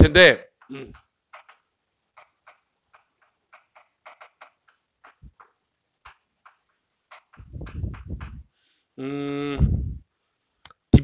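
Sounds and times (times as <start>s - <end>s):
chalk clicking on chalkboard: 0.6s - 8.4s.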